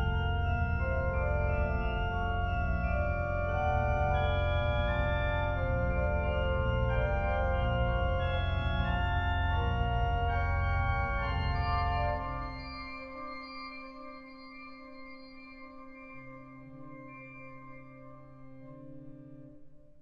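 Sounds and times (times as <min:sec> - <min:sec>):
pipe organ chords: 0:00.0 - 0:12.8.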